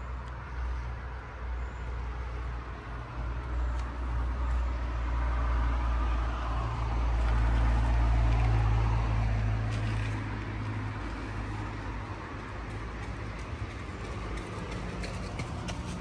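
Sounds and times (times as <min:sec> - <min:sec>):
motor vehicle passing: 0:04.1 - 0:16.0.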